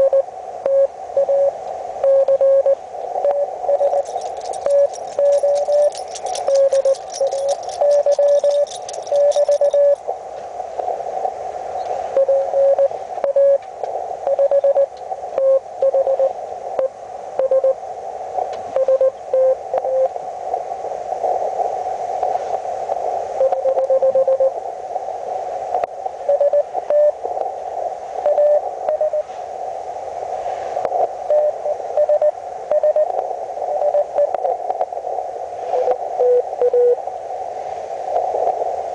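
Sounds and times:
receiver hiss: 0.0 - 38.9
morse code beeps: 3.3 - 10.0, 31.3 - 33.1.

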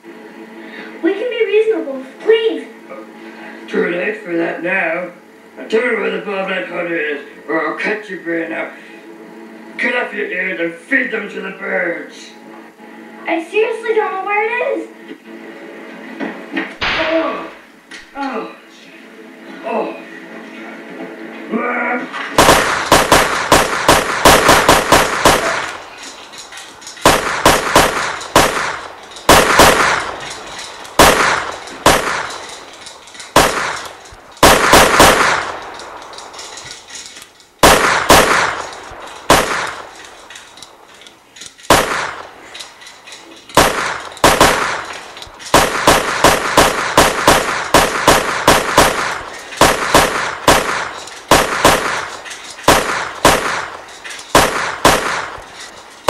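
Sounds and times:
rapid gunfire volleys: 22.3 - 40.8, 41.6 - 56.0.

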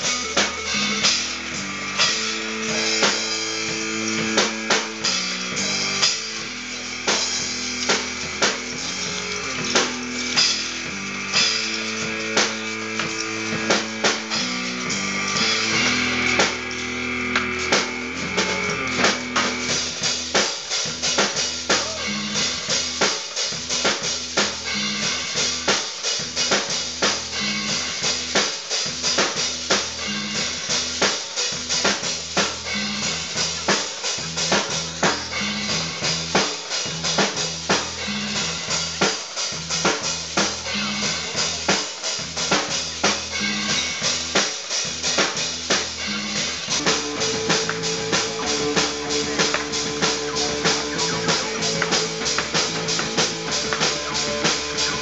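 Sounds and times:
low bass line: 0.0 - 20.4, 46.0 - 55.0
drum kit beat: 0.0 - 55.0.

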